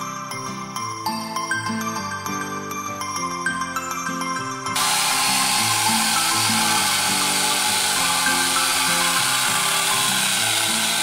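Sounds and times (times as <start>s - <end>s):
background music: 0.0s - 11.0s
electric chainsaw cutting log: 4.8s - 11.0s.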